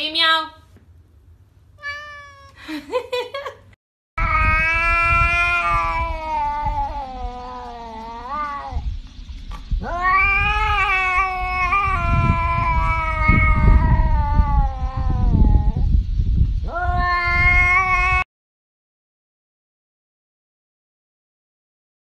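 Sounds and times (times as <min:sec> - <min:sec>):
cat yowling: 0:01.8 - 0:02.6, 0:04.2 - 0:08.9, 0:09.8 - 0:15.9, 0:16.7 - 0:18.3.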